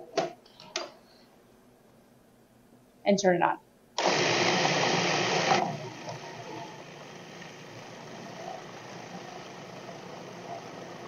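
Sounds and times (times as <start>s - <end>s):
food processor motor chopping: 4.0s - 11.0s.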